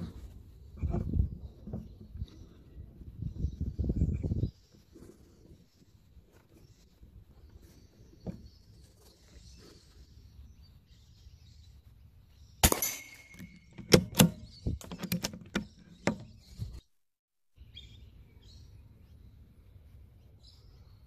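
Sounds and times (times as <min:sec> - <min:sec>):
rifle shot: 0:12.6 - 0:14.4.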